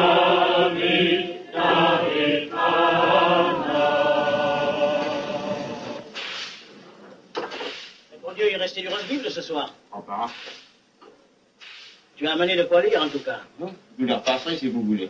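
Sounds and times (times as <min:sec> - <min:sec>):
group of voices chanting: 0:00.0 - 0:06.1
short hiss: 0:06.1 - 0:06.8, 0:07.4 - 0:08.1, 0:08.9 - 0:09.4, 0:10.2 - 0:10.8, 0:11.6 - 0:12.2, 0:12.8 - 0:13.5.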